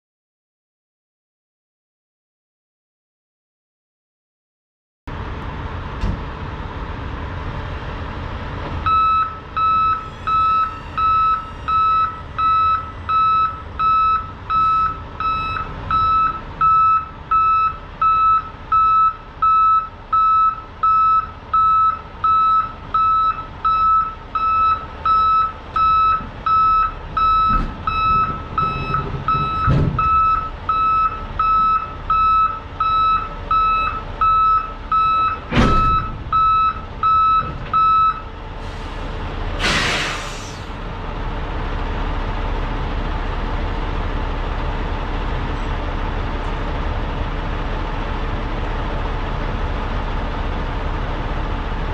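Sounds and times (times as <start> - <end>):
low engine rumble: 5.1 - 51.9
vehicle backup alarm beeping: 8.8 - 38.3
dull thump: 35.5 - 36.4.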